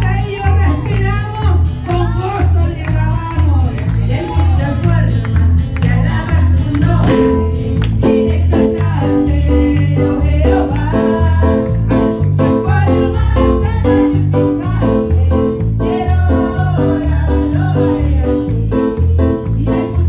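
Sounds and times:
electric bass: 0.0s - 20.0s
steady bouncing beat: 0.0s - 20.0s
women singing into microphones: 5.8s - 20.0s.

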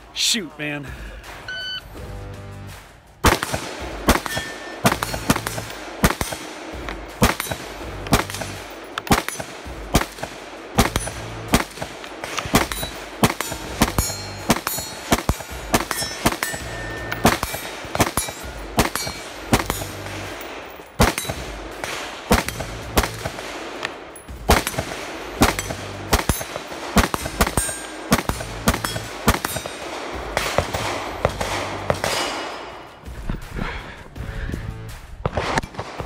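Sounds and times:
music with bass beat: 1.0s - 3.1s, 33.1s - 35.2s
rifle shots: 3.2s - 33.0s, 35.2s - 36.0s
steel targets ringing: 4.1s - 5.8s, 12.6s - 21.6s, 25.5s - 29.9s.

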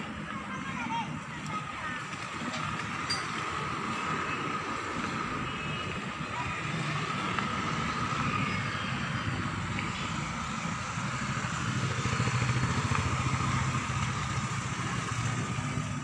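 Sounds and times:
motorbikes passing: 0.0s - 16.0s.

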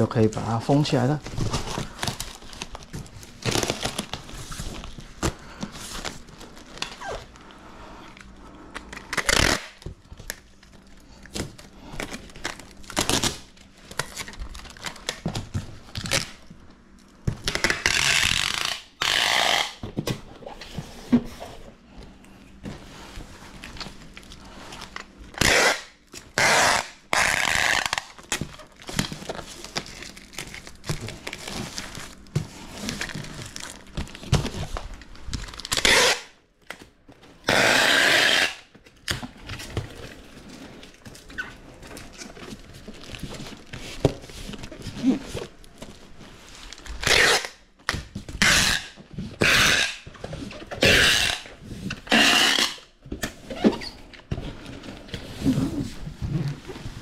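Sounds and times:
packing tape ripping off roll: 1.2s - 7.4s, 8.8s - 16.4s, 17.4s - 19.8s, 24.4s - 32.2s, 32.8s - 45.6s, 46.7s - 53.9s.

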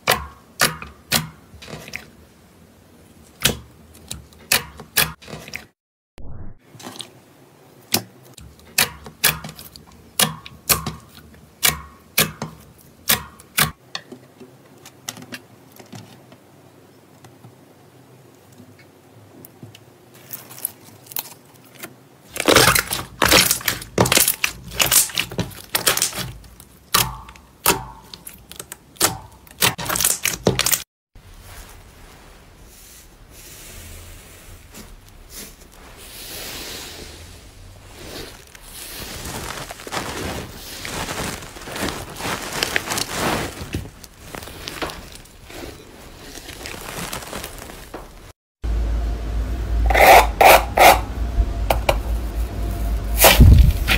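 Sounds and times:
slime rustling: 20.1s - 27.0s, 34.6s - 48.4s.

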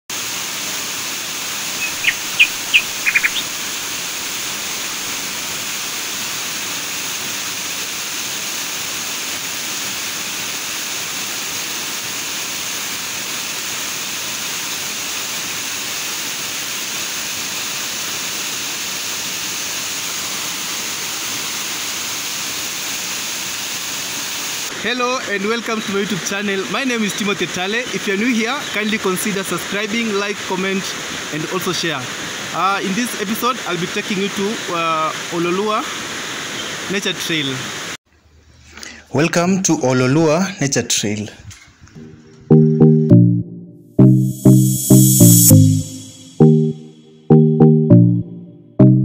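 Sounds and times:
waterfall pouring over rocks: 0.1s - 38.0s
short high chirps: 1.8s - 3.6s, 42.0s - 49.0s.

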